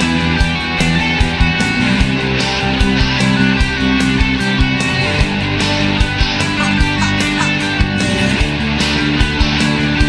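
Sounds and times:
instrumental music with drum beat: 0:06.3 - 0:08.2.

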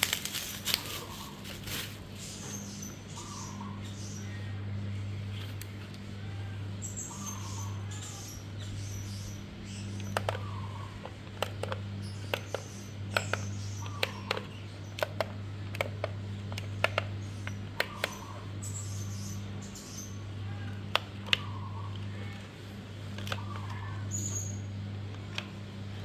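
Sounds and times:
steady low hum: 0:00.0 - 0:26.0
plastic clicks of a transmitter: 0:09.9 - 0:18.3, 0:20.9 - 0:22.1, 0:23.1 - 0:23.8.

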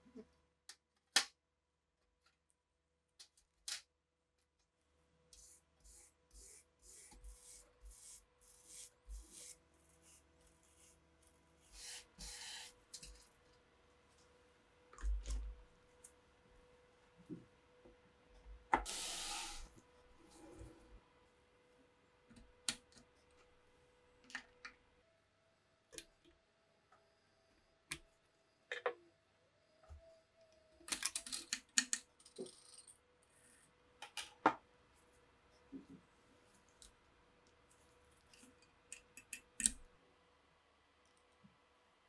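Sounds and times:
hissing burst: 0:18.9 - 0:19.7.

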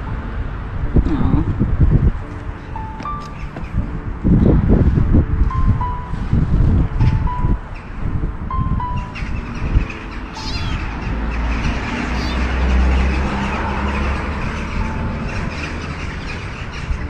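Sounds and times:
passing vehicle rumble: 0:00.0 - 0:17.0
kitten mewing: 0:10.3 - 0:10.8, 0:12.0 - 0:12.6.

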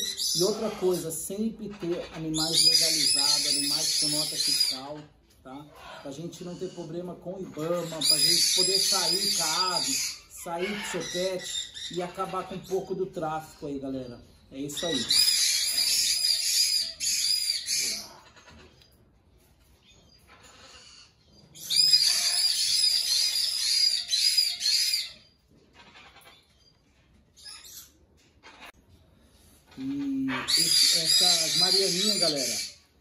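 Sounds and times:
parrot shrill chirps: 0:02.4 - 0:04.8, 0:07.8 - 0:12.0, 0:14.8 - 0:18.6, 0:20.2 - 0:26.6, 0:30.3 - 0:32.9.

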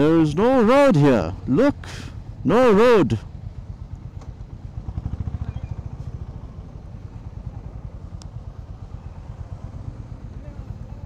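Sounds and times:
motorcycle engine running at low revs: 0:00.0 - 0:11.0.

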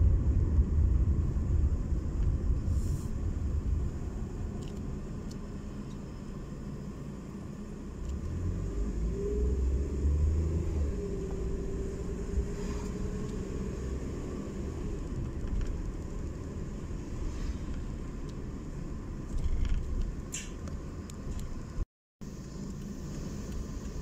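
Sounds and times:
car engine and road rumble: 0:00.0 - 0:24.0.

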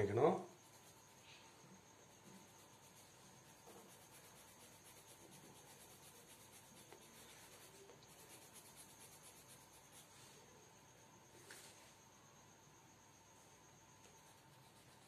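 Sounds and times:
coloured pencil scratching paper: 0:00.0 - 0:10.2, 0:14.0 - 0:15.0.

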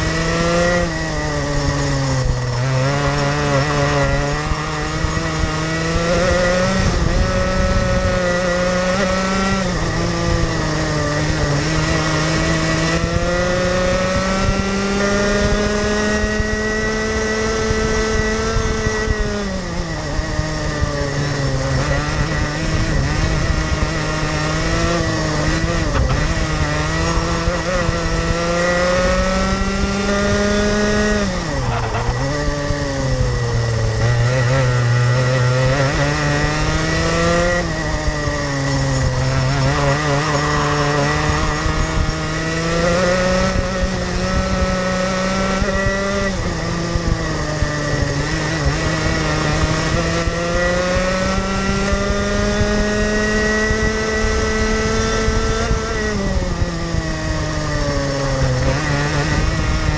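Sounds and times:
kart engine racing: 0:00.0 - 0:59.9.

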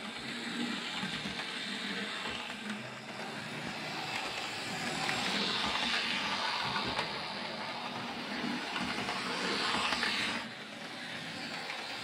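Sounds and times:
model train motor whirring: 0:00.0 - 0:12.0
wheels running on rails: 0:00.0 - 0:12.0.

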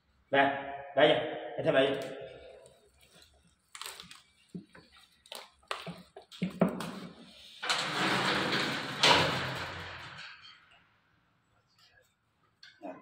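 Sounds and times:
gate knocks and clicks: 0:07.6 - 0:10.7
chain-link gate scraping rattle: 0:07.6 - 0:10.9.

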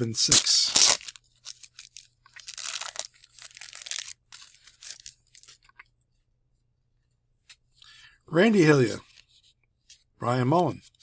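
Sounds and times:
wrapper tearing and crinkling: 0:00.2 - 0:05.6.

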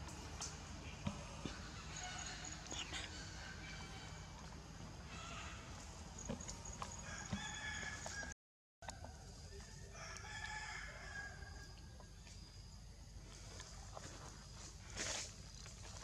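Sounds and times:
distant rooster crowing: 0:06.7 - 0:11.8.

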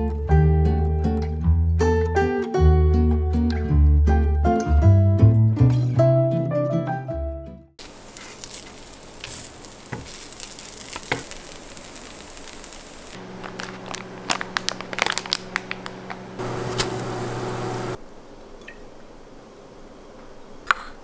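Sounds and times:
bacon sizzling in a frying pan: 0:07.8 - 0:16.4
plastic packet crinkling: 0:07.8 - 0:16.9
tongs turning food: 0:07.9 - 0:12.8.

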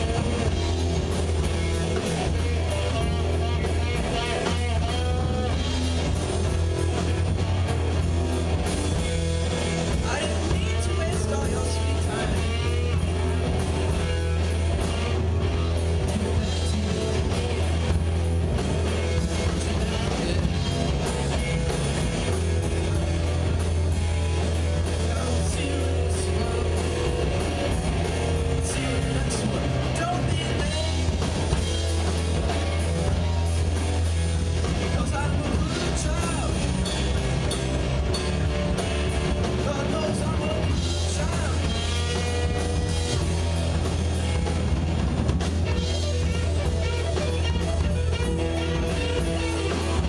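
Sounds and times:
drum kit: 0:00.0 - 0:50.0
electric guitars: 0:00.0 - 0:50.0
rock band playing: 0:00.0 - 0:50.0.

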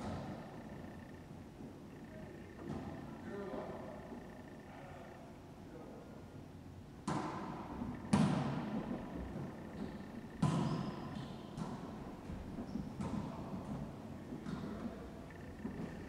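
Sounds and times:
volleyball hits echoing in court: 0:00.0 - 0:01.2, 0:02.1 - 0:03.5, 0:07.0 - 0:16.0.

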